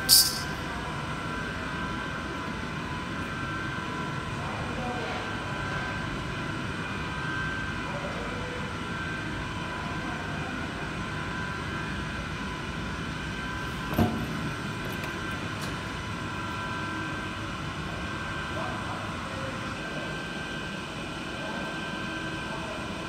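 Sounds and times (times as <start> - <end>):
metallic clank: 0.0 - 0.6
machine hum with thin whine: 0.0 - 23.0.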